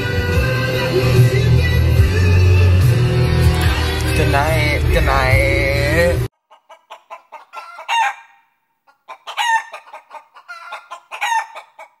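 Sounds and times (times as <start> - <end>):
chicken clucking: 6.3 - 12.0.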